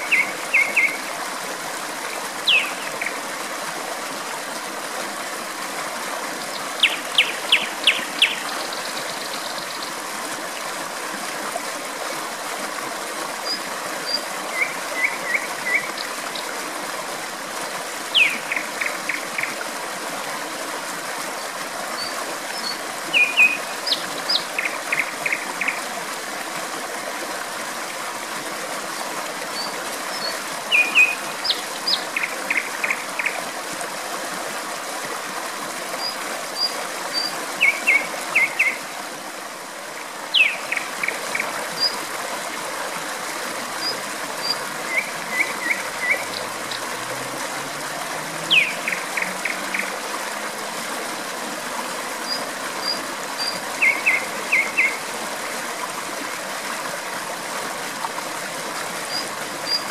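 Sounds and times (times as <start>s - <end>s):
nightingale singing: 0.0s - 1.0s, 2.5s - 2.9s, 6.8s - 9.6s, 18.2s - 18.6s, 30.2s - 33.0s, 40.3s - 40.9s, 48.5s - 49.8s, 52.3s - 55.0s
stream flowing: 0.0s - 59.9s.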